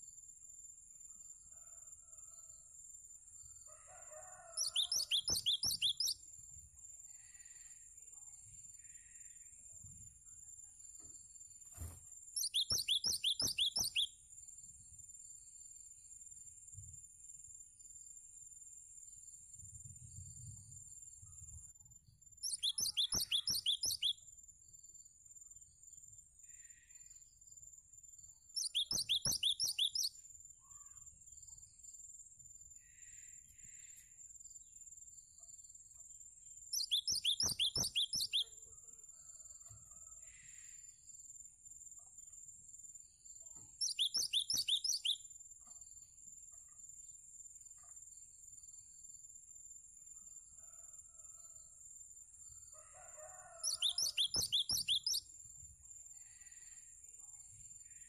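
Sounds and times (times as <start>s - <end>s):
bird singing sharp high notes: 4.6s - 6.2s, 12.4s - 14.1s, 22.5s - 24.1s, 28.6s - 30.1s, 36.8s - 38.5s, 43.8s - 45.2s.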